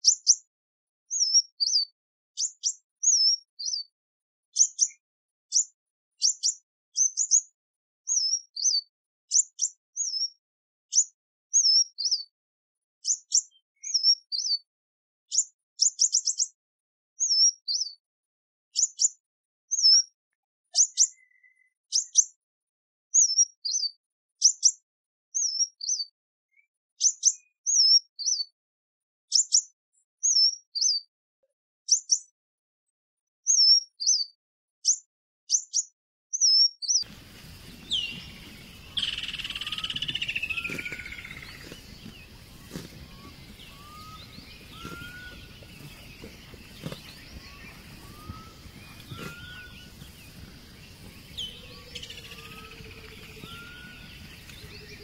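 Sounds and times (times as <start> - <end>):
outdoor background noise: 37.0 - 55.0
kingfisher chirps: 37.2 - 55.0.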